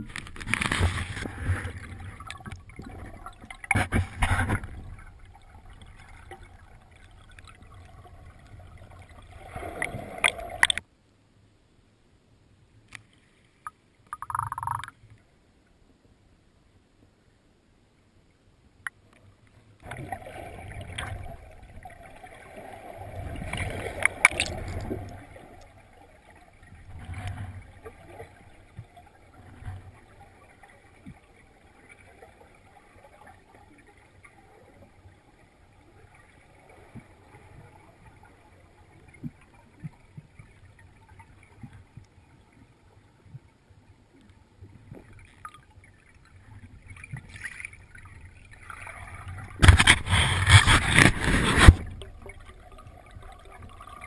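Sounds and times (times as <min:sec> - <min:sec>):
air bubbles rushing: 0:14.2 - 0:14.9
low water sloshes: 0:19.6 - 0:54.0.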